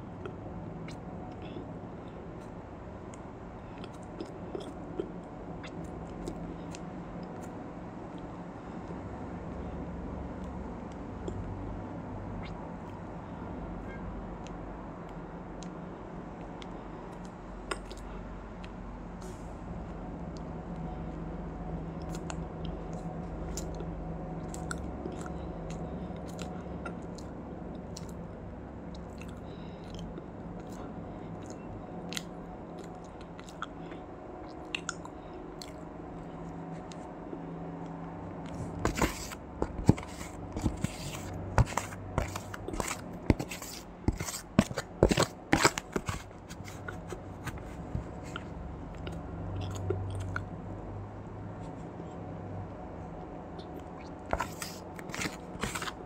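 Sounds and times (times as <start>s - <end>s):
crunching and chewing ice: 22.0s - 28.2s, 29.0s - 36.4s, 38.5s - 50.5s, 53.6s - 56.0s.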